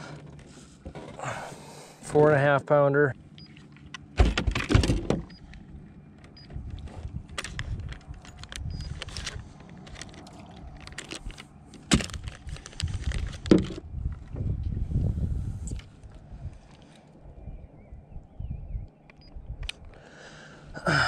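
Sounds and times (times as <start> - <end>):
handling clicks and rustles: 2.1 - 14.8
low rumble: 5.3 - 19.7.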